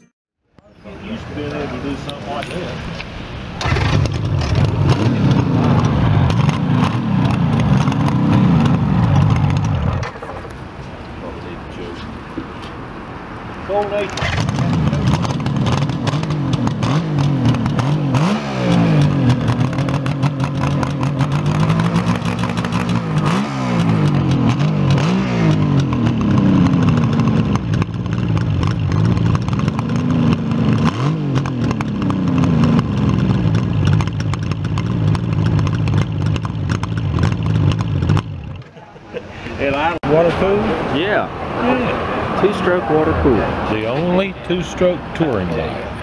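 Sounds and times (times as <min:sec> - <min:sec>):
motorcycle engine idling: 0:03.6 - 0:10.0, 0:14.2 - 0:38.6.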